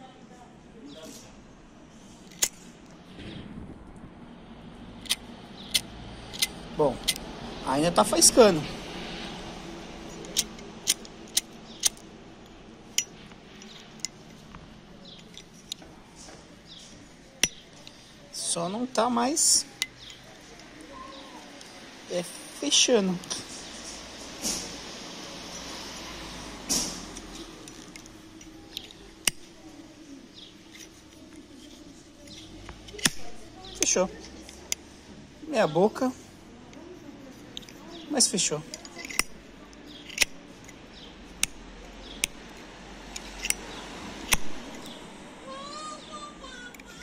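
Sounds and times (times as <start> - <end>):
lighter flint wheel scraping clicks: 2.3 - 2.6, 5.0 - 7.3, 10.1 - 15.9, 26.8 - 29.6, 30.3 - 34.8, 38.6 - 45.0.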